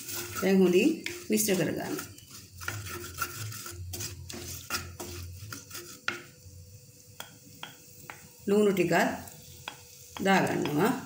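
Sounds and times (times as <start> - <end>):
wooden spoon scraping clay pot: 0.0 - 6.5.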